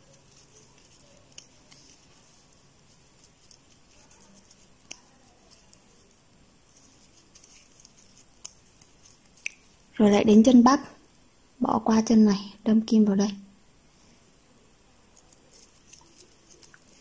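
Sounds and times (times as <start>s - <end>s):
crochet hook clicking and rustling: 0.0s - 9.7s, 15.1s - 17.0s.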